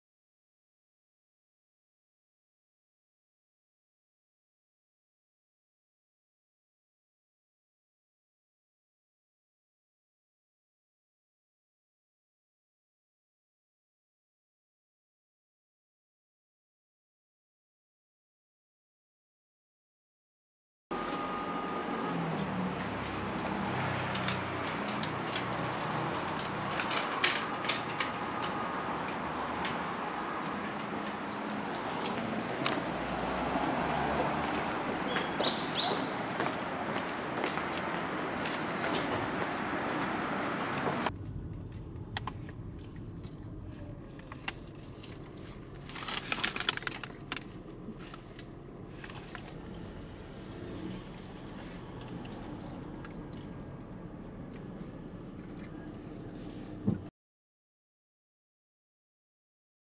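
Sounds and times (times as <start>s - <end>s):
low rumble inside a car: 41.1s - 57.1s
paper bag crinkling: 44.1s - 48.3s
paper crackling: 44.1s - 48.3s.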